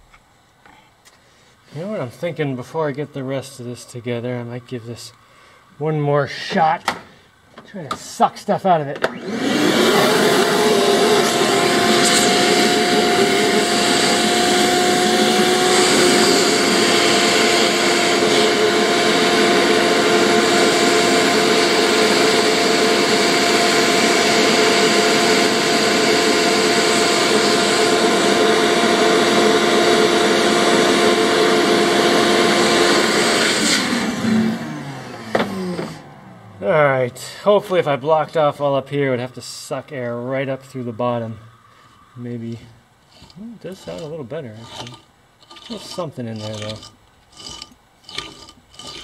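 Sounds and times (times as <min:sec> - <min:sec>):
vacuum cleaner running: 0:09.0 - 0:37.0.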